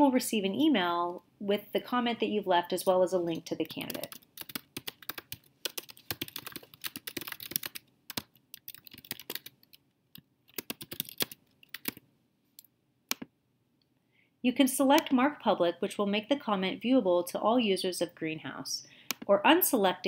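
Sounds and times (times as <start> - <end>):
typing on a computer keyboard: 3.6 - 9.8, 10.5 - 12.0.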